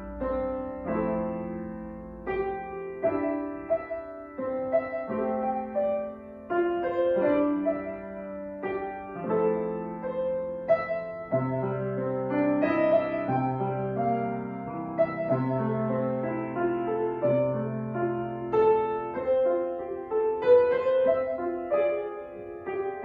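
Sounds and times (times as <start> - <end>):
slow solo piano music: 0.0 - 23.0.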